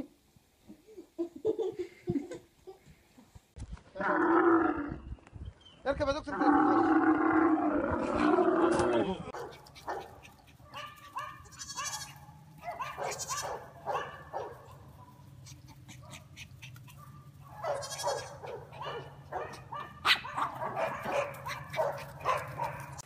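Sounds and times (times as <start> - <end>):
chihuahua yapping: 8.7 - 23.0
young goat bleating: 11.0 - 12.3, 13.0 - 13.6, 17.7 - 18.4.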